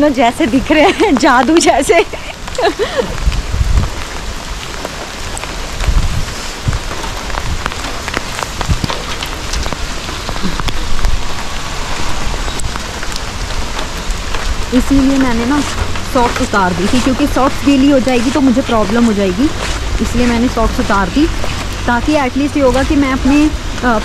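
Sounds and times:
low rumbles: 0.0s - 24.0s
raindrops ticking close: 0.0s - 24.0s
steady rain: 0.0s - 24.0s.

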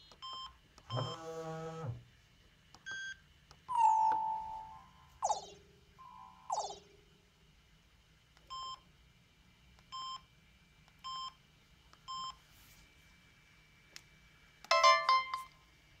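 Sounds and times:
phone keypad beeps: 2.9s - 6.8s
phone chime: 3.7s - 6.8s, 14.7s - 15.5s.

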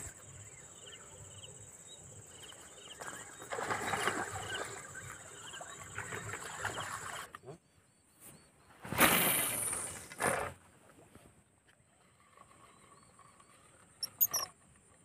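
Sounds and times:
high-pitched insect drone: 14.0s - 14.5s
short chirps: 14.0s - 14.5s.

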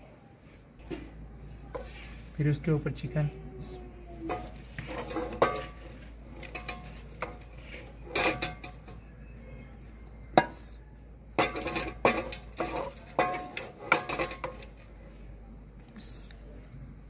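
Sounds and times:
ladle clinking on metal pot: 4.3s - 9.2s, 11.3s - 14.8s.

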